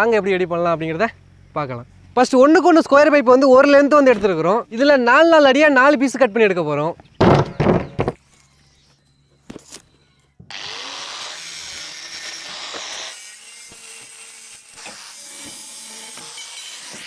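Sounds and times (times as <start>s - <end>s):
power tool cutting steel pipe: 10.5s - 17.0s.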